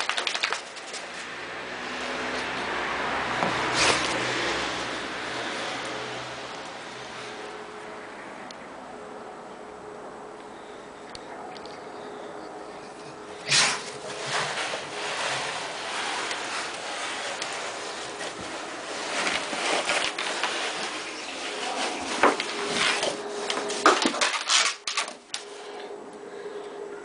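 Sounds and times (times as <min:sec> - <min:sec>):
dog scuffling on artificial turf: 0:00.0 - 0:01.3, 0:03.4 - 0:04.9, 0:13.0 - 0:24.6.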